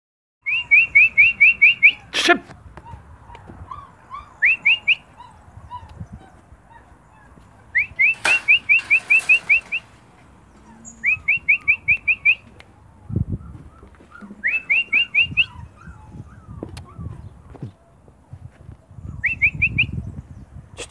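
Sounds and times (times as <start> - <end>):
rising whistled chirps: 10.8 - 12.5, 14.4 - 16.0.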